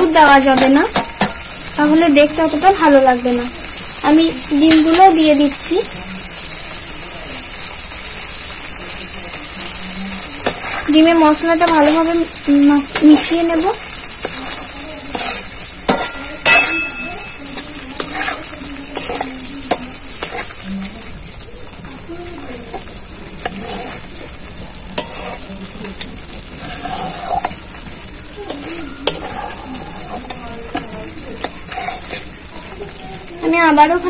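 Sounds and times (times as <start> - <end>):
metal spatula scraping a pan: 0.0 - 3.0, 9.6 - 20.7, 22.6 - 34.0
spice paste sizzling: 0.0 - 34.0.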